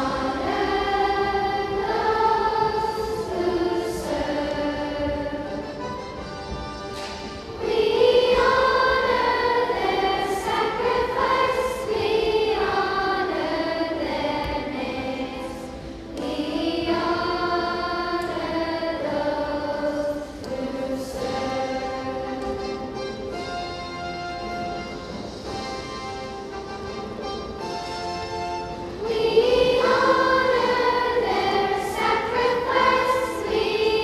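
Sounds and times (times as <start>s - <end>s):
children's choir singing: 0.0s - 26.3s, 28.4s - 34.0s.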